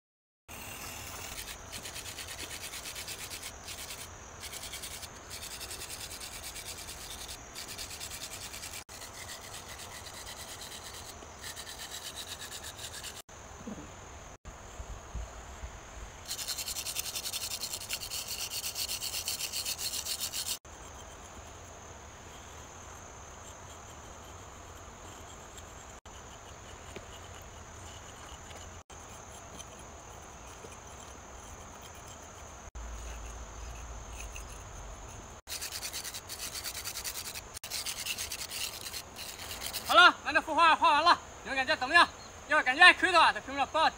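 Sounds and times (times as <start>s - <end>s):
stick scraping on concrete: 0.5s - 13.3s, 16.3s - 21.6s, 23.4s - 40.0s
insects buzzing: 0.5s - 43.9s.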